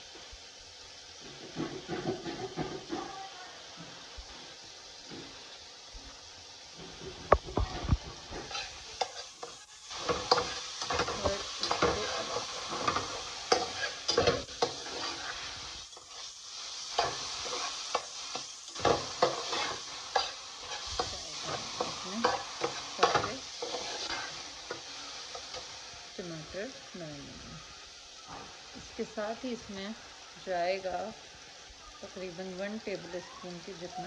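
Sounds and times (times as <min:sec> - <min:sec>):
food sizzling: 0:00.0 - 0:34.0
metal spatula scraping a pan: 0:01.2 - 0:03.1, 0:06.8 - 0:26.4.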